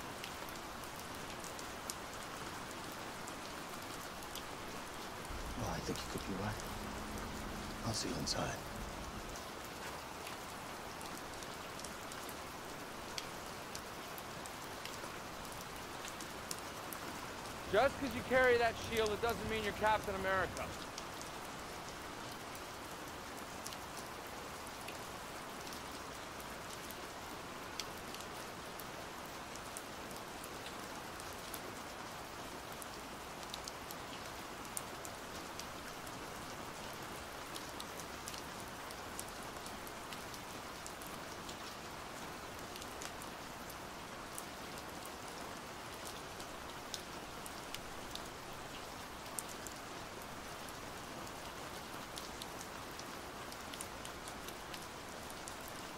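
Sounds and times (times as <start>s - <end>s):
pouring rain: 0.0s - 55.9s
raindrops tapping: 4.2s - 11.9s, 17.5s - 21.3s.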